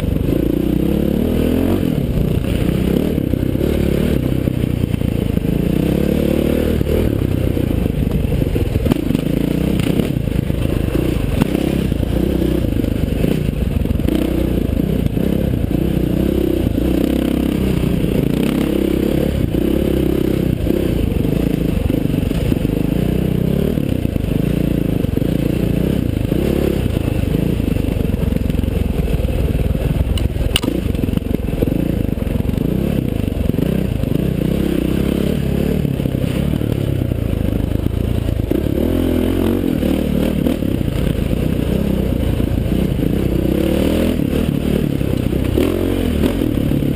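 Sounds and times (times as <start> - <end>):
dirt bike engine revving: 0.0 - 29.3, 29.9 - 37.2, 37.8 - 46.9
sharp tick: 30.1 - 30.9.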